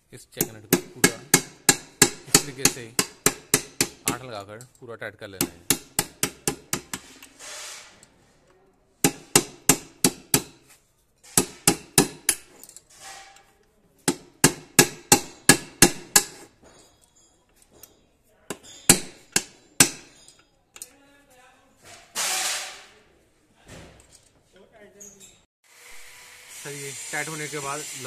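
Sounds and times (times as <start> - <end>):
hammer tapping steel rod: 0.4 - 4.5, 5.4 - 7.3, 9.0 - 10.6, 11.3 - 12.5, 18.5 - 20.2.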